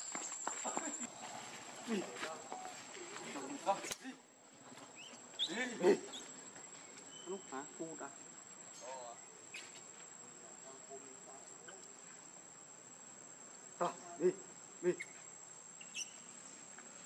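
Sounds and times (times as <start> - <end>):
high insect drone: 0.0 - 17.0
macaque calls: 5.0 - 6.4, 15.8 - 16.3.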